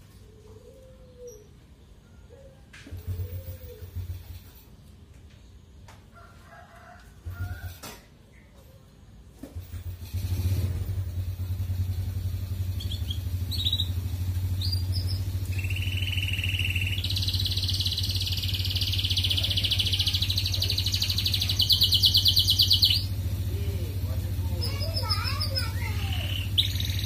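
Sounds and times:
low engine-like hum: 0.0 - 4.7, 7.0 - 27.0
canary singing trills: 12.2 - 27.0.

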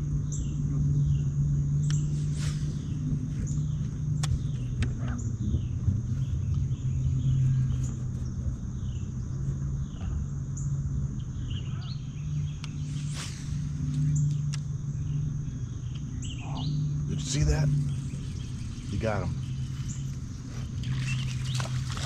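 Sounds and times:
birds chirping: 0.0 - 22.0
electric motor humming: 12.3 - 22.0.

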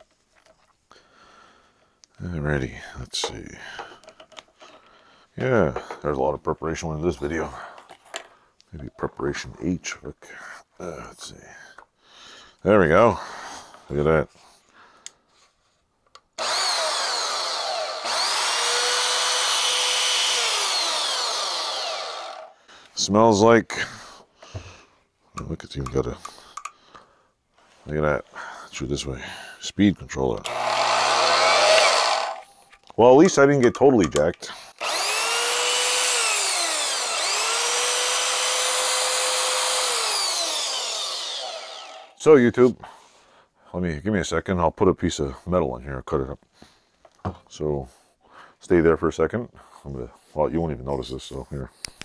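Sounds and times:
band saw motor whine: 16.4 - 22.5, 30.5 - 32.4, 34.8 - 42.2.

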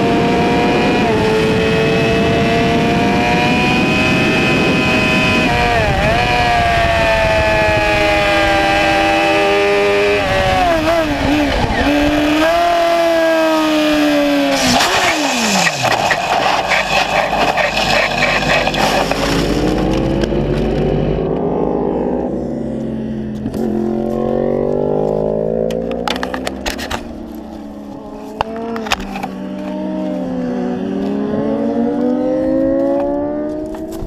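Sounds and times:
motorcycle engine running hard: 0.0 - 34.0
other motorcycle engines: 0.0 - 34.0
motorcycle scraping across asphalt: 10.7 - 21.0, 23.2 - 34.0.

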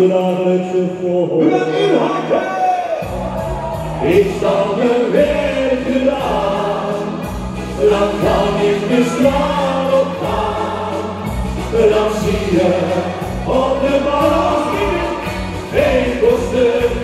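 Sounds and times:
held bass notes: 3.0 - 17.0
person singing: 3.8 - 17.0.

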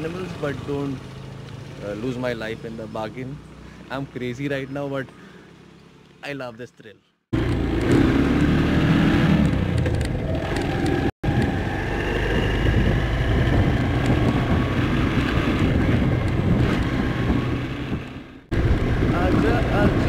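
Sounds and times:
wind and road noise: 0.0 - 6.6, 7.4 - 20.0
motorcycle engine running: 7.4 - 20.0.

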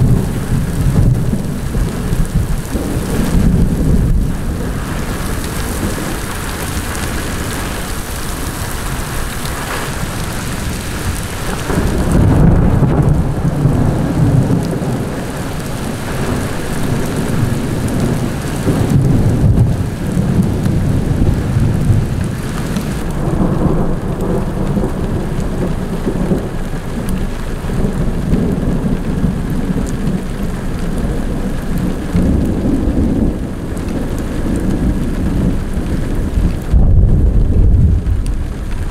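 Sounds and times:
heavy rain with hail: 0.0 - 38.9
low rumbling thunder: 0.0 - 38.9.

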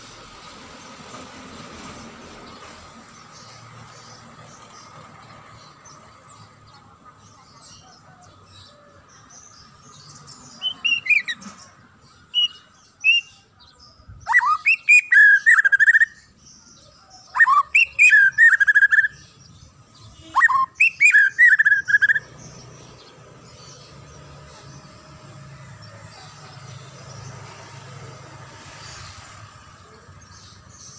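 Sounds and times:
bird singing whistled phrases: 12.3 - 13.5, 14.2 - 16.2, 17.3 - 19.2, 20.2 - 22.3.

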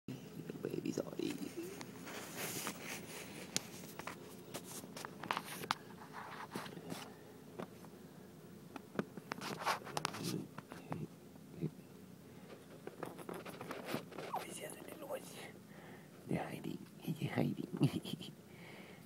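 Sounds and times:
faint scratchy rustling: 1.0 - 7.9, 8.8 - 11.1, 12.4 - 15.5.

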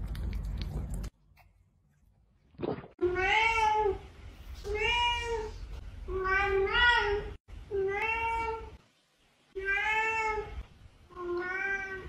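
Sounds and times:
cat meowing: 9.6 - 12.0.

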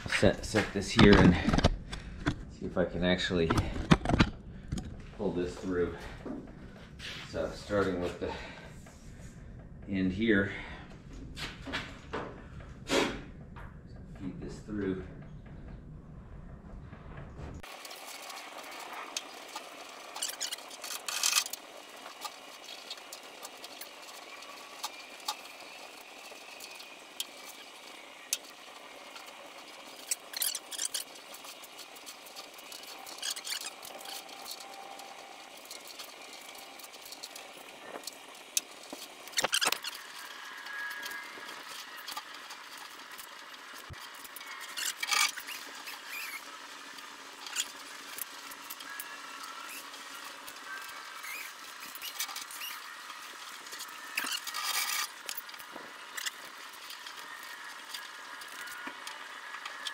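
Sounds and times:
rubber seal squeaking: 39.3 - 42.2, 44.4 - 46.5, 48.7 - 53.1, 53.7 - 55.4.

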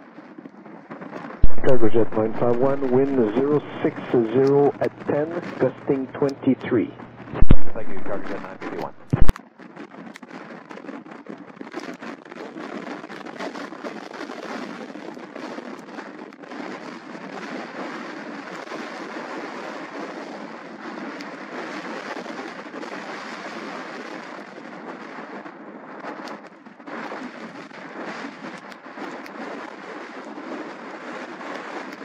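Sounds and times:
jet engine rush: 1.4 - 9.3.

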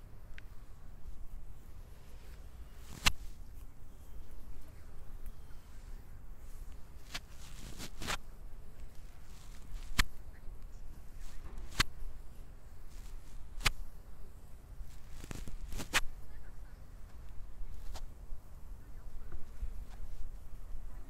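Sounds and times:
massage smacks on skin: 2.1 - 4.6, 6.6 - 14.0, 14.8 - 16.1, 17.1 - 18.1.

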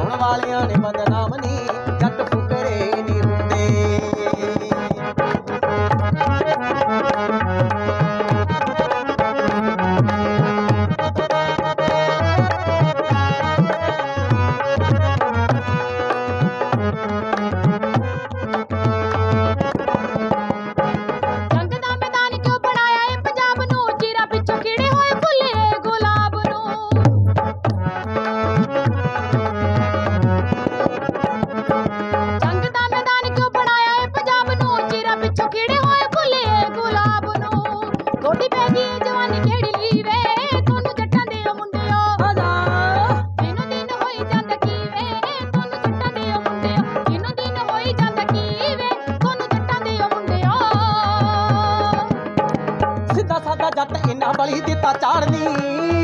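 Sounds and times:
dholak drum beat: 0.0 - 56.0
harmonium melody: 0.0 - 56.0
hand drum beating rhythm: 23.6 - 32.1
person singing folk song: 53.1 - 56.0.

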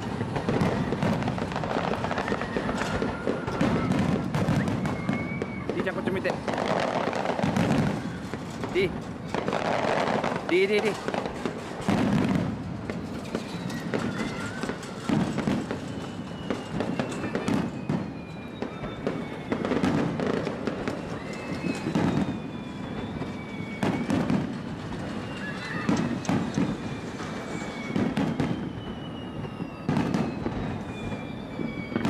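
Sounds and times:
high falling whistles: 0.0 - 11.1, 13.0 - 32.0
firework bursts booming and crackling: 0.0 - 32.0.

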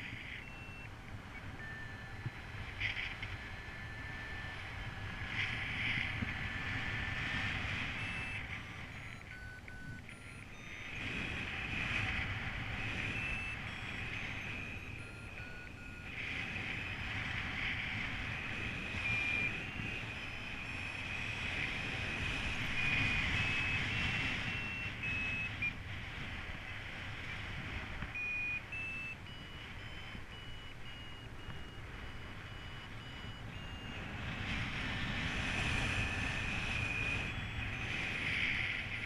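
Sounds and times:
variometer electronic beeps: 0.0 - 39.0
wind on microphone: 2.1 - 8.9, 31.2 - 39.0.

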